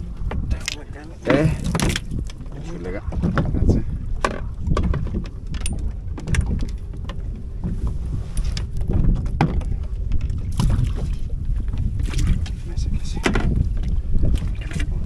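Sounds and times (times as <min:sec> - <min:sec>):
wind rumbling on microphone: 0:00.0 - 0:15.0
fishing gear clicking and knocking: 0:00.2 - 0:07.4, 0:08.3 - 0:10.4, 0:12.2 - 0:13.6.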